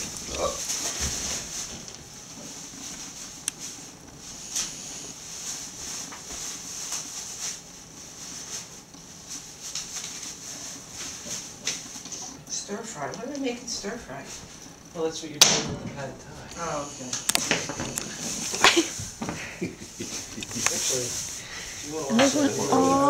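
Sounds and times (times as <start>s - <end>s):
steady background hiss: 0.0s - 23.0s.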